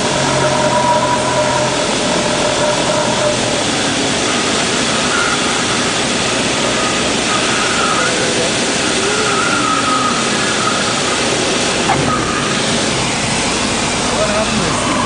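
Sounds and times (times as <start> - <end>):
airplane engine drone: 0.0 - 15.0
heavy rushing noise: 0.0 - 15.0.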